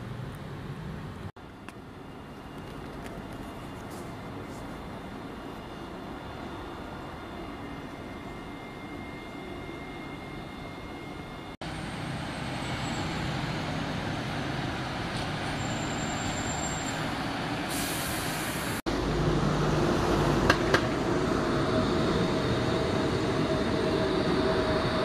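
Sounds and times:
bus running in traffic: 0.0s - 25.0s
tram rolling on track: 0.0s - 25.0s
air brakes hissing: 15.1s - 18.8s
tram wheels clicking: 19.9s - 25.0s.

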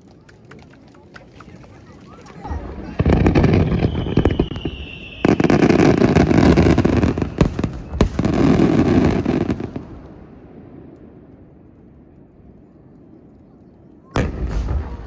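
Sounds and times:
firework crackling: 1.7s - 10.1s
firework bangs: 2.5s - 10.8s, 14.2s - 15.0s
firework whistle: 3.0s - 8.6s.

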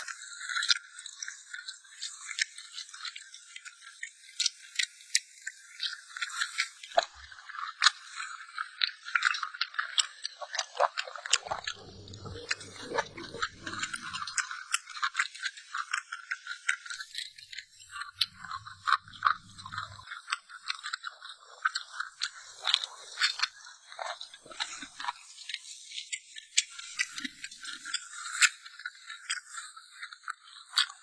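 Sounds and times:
person chewing crunchy food: 5.5s - 25.8s.

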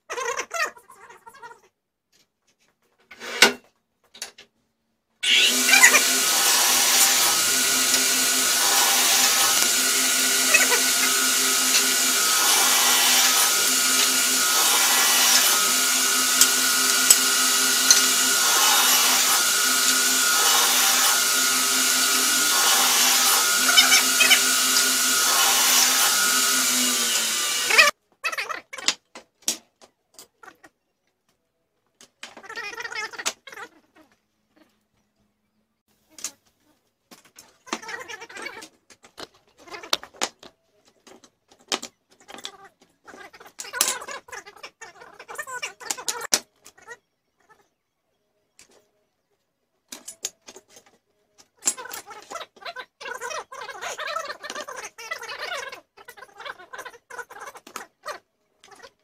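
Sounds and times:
miter saw cutting wood: 5.2s - 27.9s.

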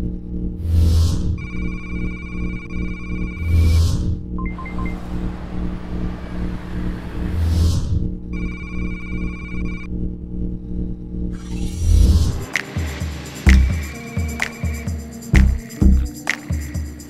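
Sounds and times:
electronic ringing tone: 1.4s - 3.7s, 4.4s - 5.0s, 8.4s - 9.9s
low music drone: 11.6s - 17.0s.

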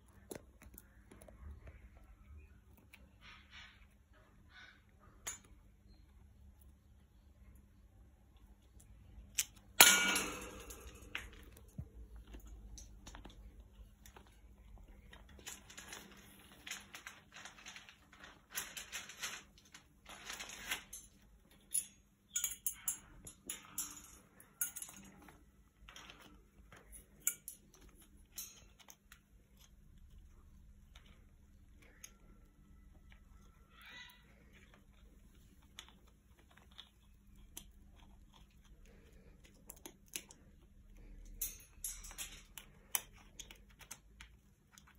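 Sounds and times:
beak and claws tapping metal bars: 9.3s - 13.5s, 20.3s - 29.8s, 41.0s - 44.4s
sharp metallic clang: 9.8s - 11.4s.

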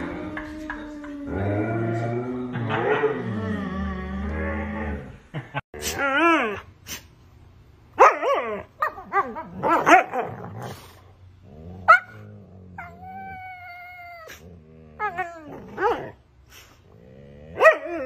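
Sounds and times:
dog whining: 11.9s - 16.2s.

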